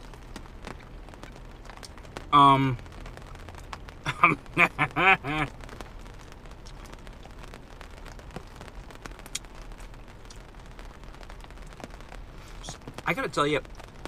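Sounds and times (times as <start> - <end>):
rain pattering on car roof: 0.0 - 14.0
man laughing: 4.0 - 5.5.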